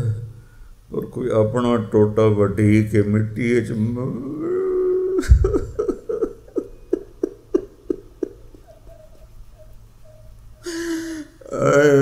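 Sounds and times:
man sobbing: 4.1s - 9.7s, 10.6s - 12.0s.

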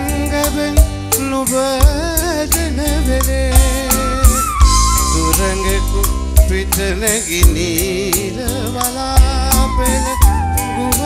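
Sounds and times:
live band playing pop: 0.0s - 11.0s.

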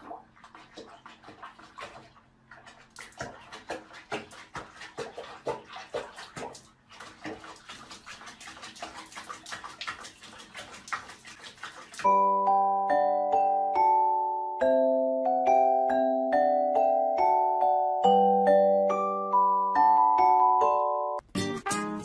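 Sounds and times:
water splashing in plastic basin: 0.0s - 12.2s.

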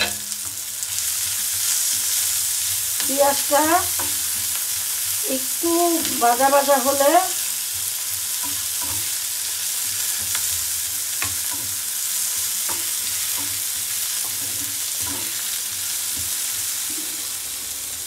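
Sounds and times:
spatula scraping and knocking pan: 0.0s - 2.3s, 8.3s - 16.6s
onions sizzling in oil: 0.0s - 18.0s.

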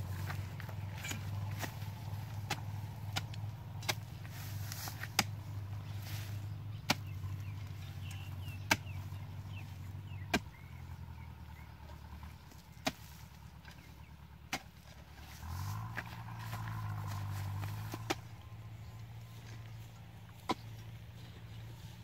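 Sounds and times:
steady low hum: 0.0s - 22.0s
hoe chopping hard soil: 0.1s - 10.9s, 12.2s - 13.9s, 14.5s - 15.5s, 20.3s - 20.8s.

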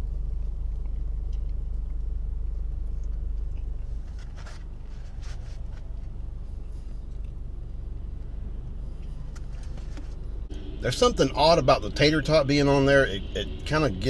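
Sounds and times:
chewing and mouth noises: 0.0s - 4.8s, 5.9s - 9.5s
car idling hum: 0.0s - 14.0s.

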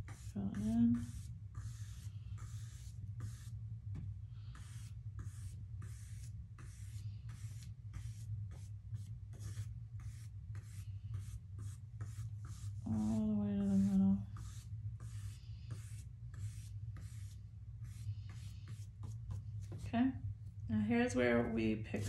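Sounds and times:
paintbrush swishing on canvas: 0.0s - 20.0s
person speaking: 19.7s - 22.0s.

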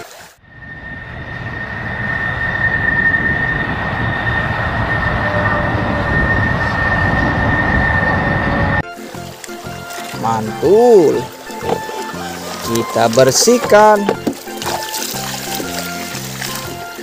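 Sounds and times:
jet engines roaring with high whine: 0.4s - 8.9s.

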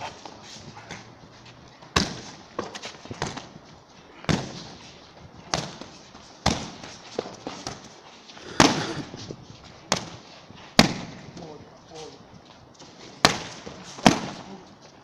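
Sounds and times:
boxing glove punches on mitts: 5.5s - 6.8s.

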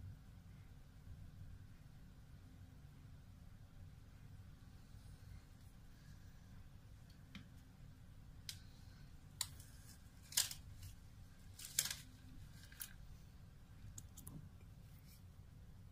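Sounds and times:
low steady hum: 0.0s - 15.9s
small sharp clicks: 8.4s - 8.8s.

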